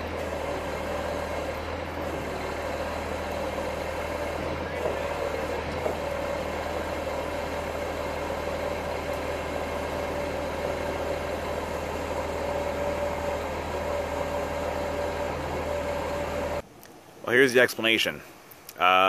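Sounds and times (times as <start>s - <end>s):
machine whine: 0.0s - 16.6s.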